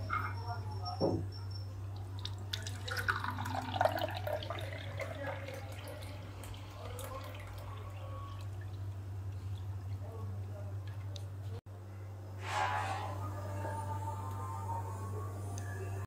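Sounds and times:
steady low hum: 0.0 - 16.0
juice pouring into glass: 2.2 - 8.8.

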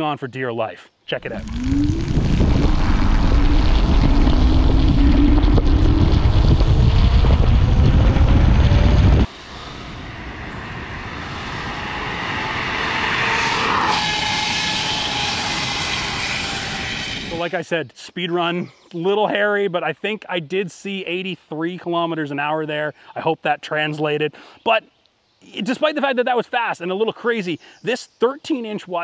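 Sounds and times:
wind noise on microphone: 1.2 - 17.4
electric scooter motor whine: 1.3 - 17.3.

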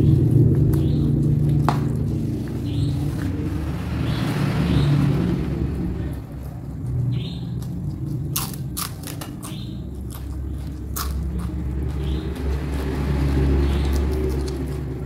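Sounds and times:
low background hum: 0.0 - 15.0
crisp crunching of food being chewed: 6.4 - 15.0.

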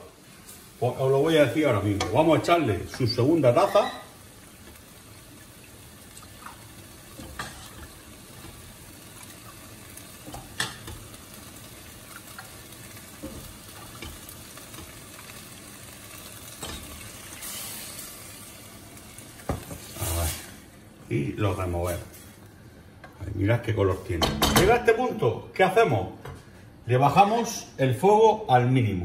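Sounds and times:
rice sizzling in a pot: 0.0 - 22.6
broth hissing into hot pot: 4.2 - 20.8.

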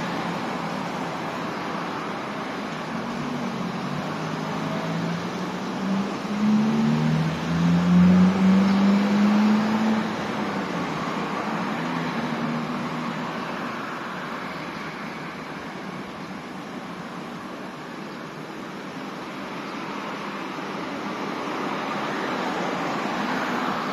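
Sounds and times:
passing vehicle engine: 0.0 - 16.9
tyre and road noise: 0.0 - 23.9.

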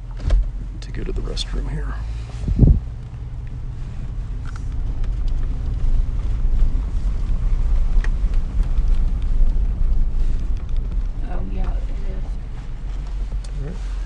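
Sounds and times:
vehicle engine and tyre rumble: 0.0 - 14.0
gravel ticks: 0.4 - 14.0.

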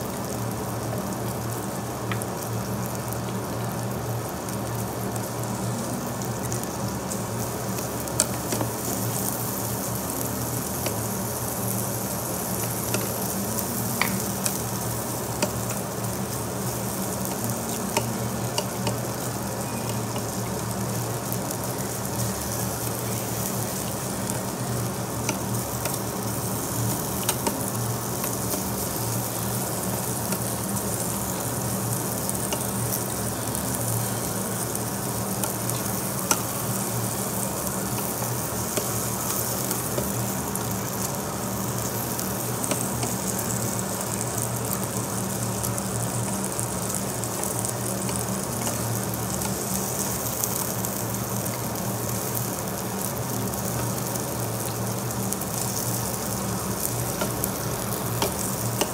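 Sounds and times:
meat sizzling on a grill: 0.0 - 58.9
metal tongs clicking on grill: 26.8 - 28.8, 57.0 - 58.9.

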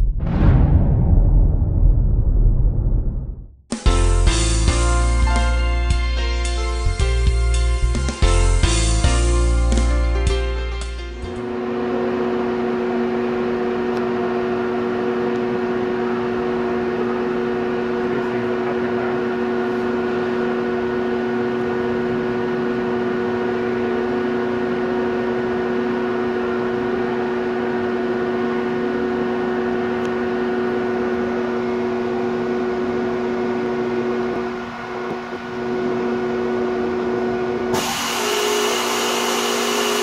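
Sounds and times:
grinder humming and whining: 11.4 - 40.0.

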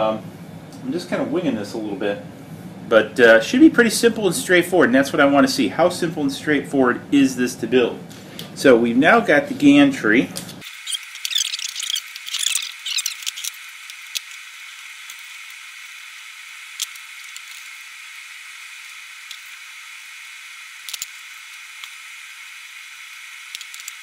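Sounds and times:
steady high hiss: 10.0 - 24.0
high chirping: 10.6 - 14.2.

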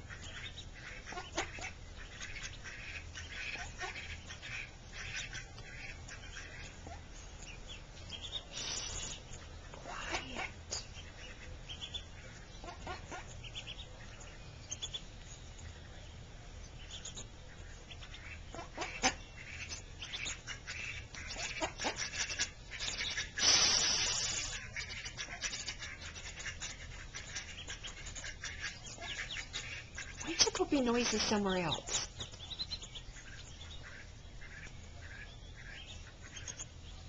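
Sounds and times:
ducklings pecking at grain: 0.0 - 37.0
ducklings peeping: 0.0 - 37.0
short noisy burst: 23.4 - 24.6.

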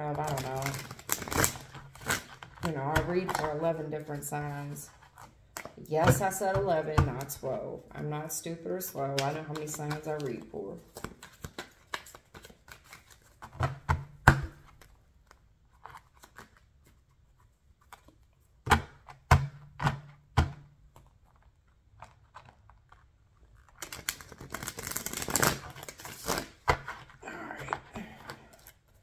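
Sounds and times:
cards riffled: 22.0 - 29.0.

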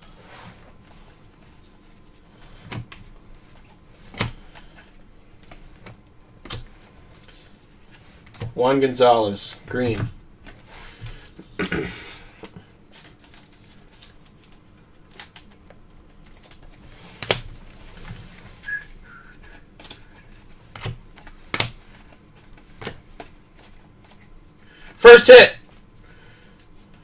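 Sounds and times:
trading cards flipped by hand: 12.4 - 24.3
cards clicking and tapping: 19.3 - 24.2.

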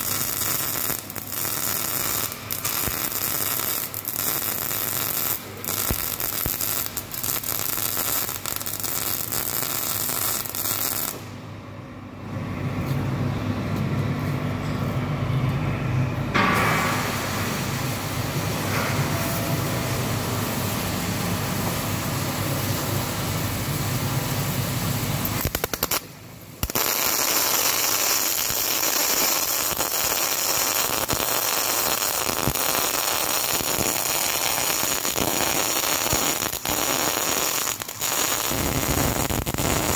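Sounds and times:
welding arc crackling: 0.0 - 11.3, 19.3 - 39.9.

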